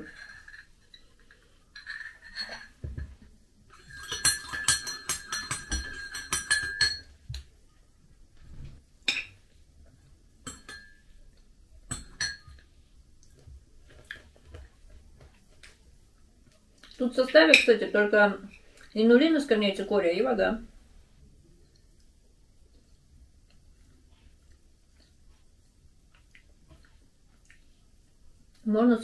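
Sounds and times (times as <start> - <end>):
metal spoon clinking on dishes: 0.0 - 3.1, 3.7 - 7.2, 10.4 - 11.1, 11.9 - 12.6
spoon tapping a plate: 3.8 - 7.1, 10.4 - 11.0.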